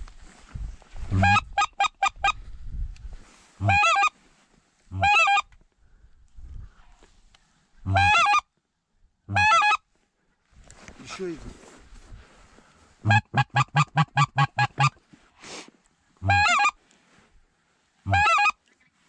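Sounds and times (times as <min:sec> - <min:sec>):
goose call honks: 0:01.1 - 0:02.3, 0:04.9 - 0:05.4, 0:07.9 - 0:08.4, 0:09.3 - 0:09.8, 0:13.0 - 0:15.0, 0:16.2 - 0:16.8, 0:18.1 - 0:18.6.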